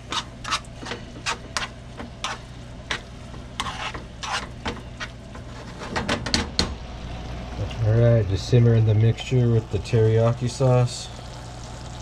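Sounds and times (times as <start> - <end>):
utensil scraping a frying pan: 0.0 - 6.3
low sizzle of simmering food: 0.0 - 12.0.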